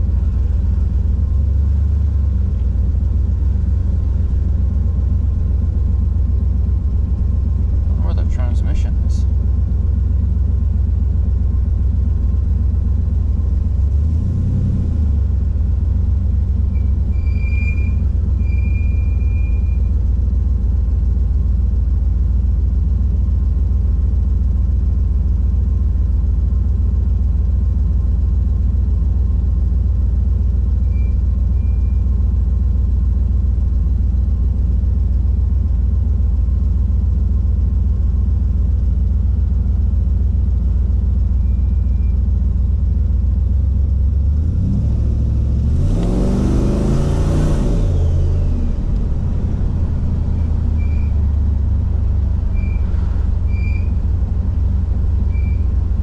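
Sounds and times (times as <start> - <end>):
car engine idling: 0.0 - 56.0
high-pitched brake squeal: 16.8 - 19.9, 41.4 - 42.2, 50.3 - 51.2, 52.5 - 54.0, 55.2 - 55.8.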